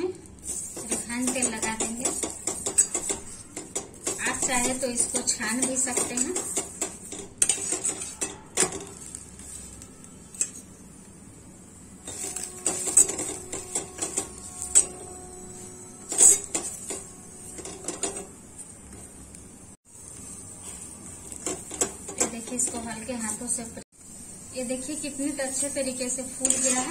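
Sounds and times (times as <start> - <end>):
spoon scraping a frying pan: 0.2 - 10.9, 12.0 - 19.1, 25.4 - 26.9.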